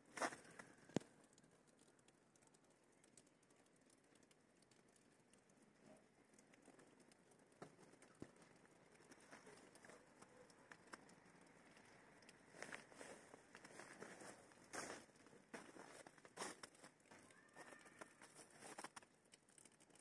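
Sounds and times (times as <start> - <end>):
small ticks: 0.1 - 20.0.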